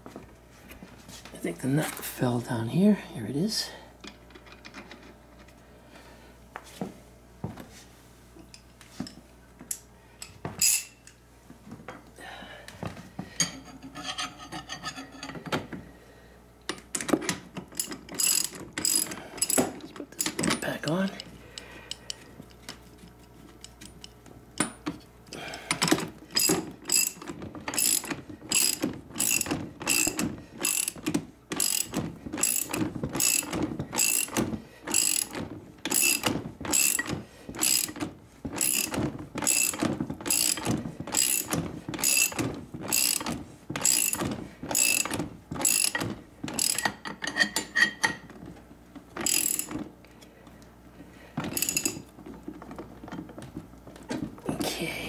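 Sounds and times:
ratchet wrench clicking: 17.7s - 19.6s, 26.4s - 38.0s, 38.6s - 46.0s, 46.6s - 46.9s, 49.2s - 49.8s, 51.5s - 52.0s.

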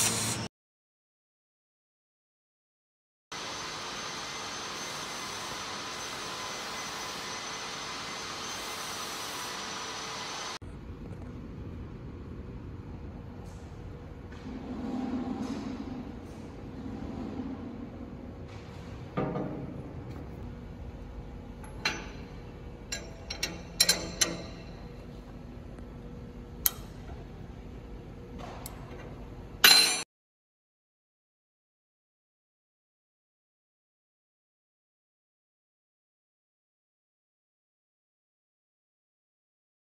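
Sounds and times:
rushing machine noise with whine: 3.4s - 11.0s
rumbling shop-floor noise: 10.6s - 30.0s
spanner clinking on metal: 21.6s - 24.9s, 29.6s - 30.0s.

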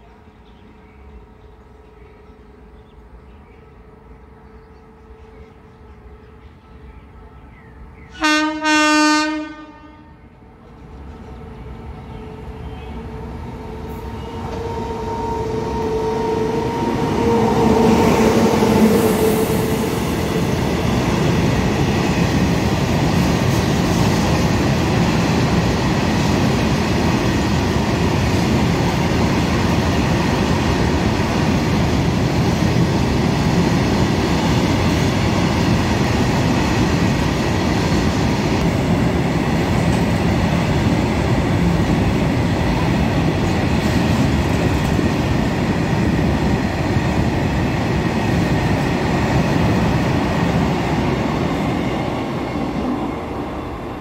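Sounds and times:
locomotive horn: 8.2s - 10.3s, 13.6s - 19.9s
train wheels clattering on rails: 19.6s - 53.7s.

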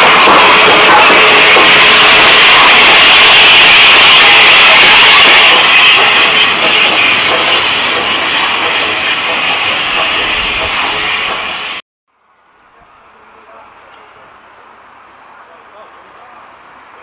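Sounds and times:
steam locomotive hissing steam: 0.0s - 11.8s.

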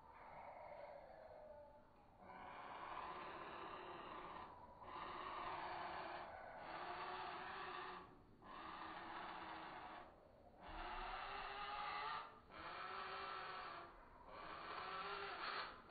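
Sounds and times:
nestlings rasping begging calls: 10.7s - 15.7s.

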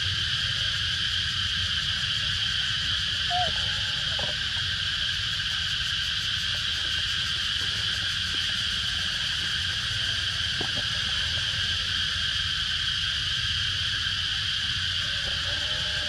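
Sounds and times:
insects buzzing: 0.0s - 16.0s.

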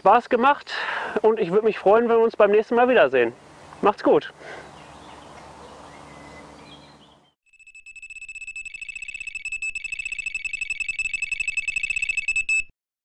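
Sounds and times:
rapid high electronic beeps: 7.5s - 12.7s.

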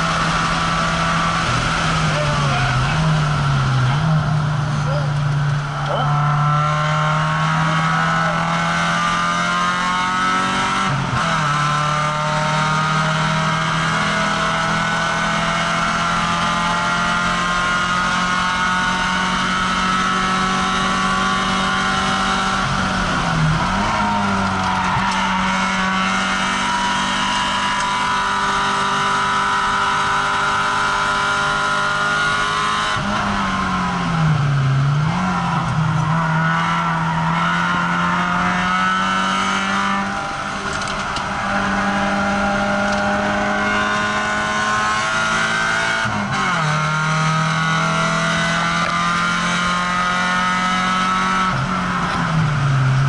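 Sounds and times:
car engine accelerating: 0.0s - 53.0s.

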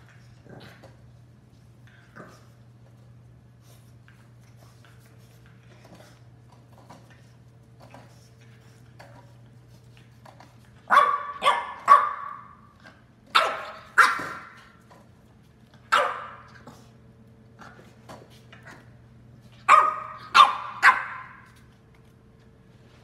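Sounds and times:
puppy barking: 10.9s - 12.6s, 13.3s - 14.6s, 15.9s - 16.5s, 19.6s - 21.5s.

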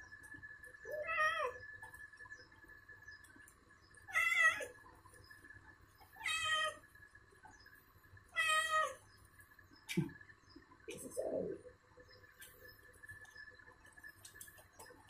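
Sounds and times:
cat meowing: 4.1s - 4.8s, 6.2s - 6.8s, 8.4s - 9.0s.

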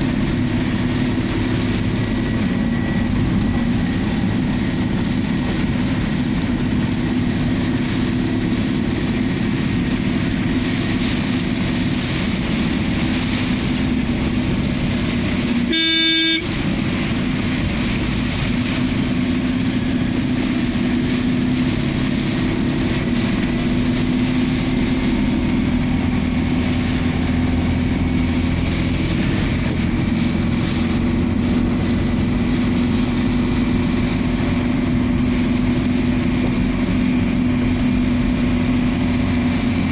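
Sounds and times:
tyres on wet road: 0.0s - 39.9s
vehicle engine running: 0.0s - 39.9s
vehicle horn: 15.6s - 16.6s.

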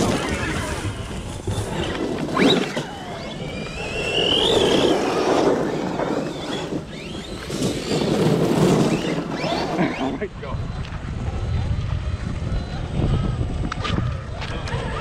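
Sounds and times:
tyres on dirt: 0.0s - 11.1s
electric motor whining: 0.0s - 15.0s
wind on microphone: 0.0s - 15.0s.

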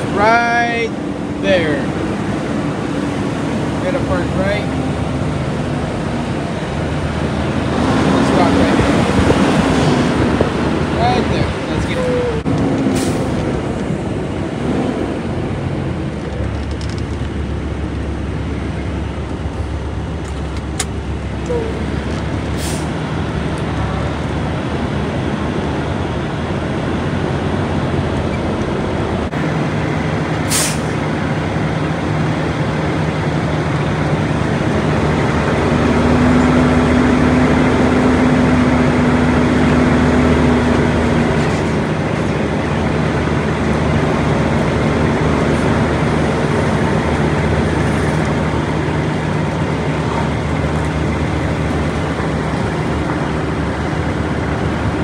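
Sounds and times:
diesel truck engine running: 0.0s - 55.0s
air brake hiss: 22.6s - 22.9s, 30.5s - 30.9s.

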